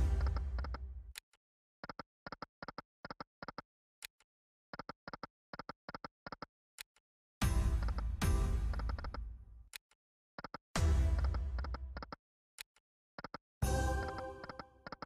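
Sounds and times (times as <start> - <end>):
rapid short clicks: 1.8 - 6.9, 10.4 - 10.6, 11.2 - 13.4, 14.1 - 15.0.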